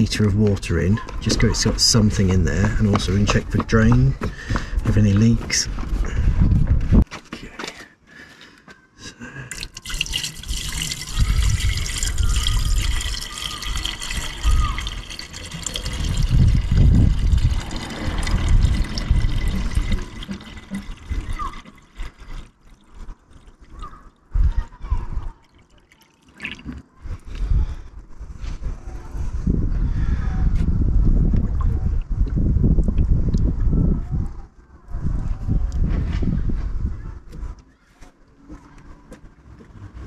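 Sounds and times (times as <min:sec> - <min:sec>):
wind rumble on microphone: 0:00.0 - 0:07.1, 0:10.4 - 0:21.6, 0:23.8 - 0:25.4, 0:26.9 - 0:37.6
water trickling and gurgling: 0:09.5 - 0:26.9.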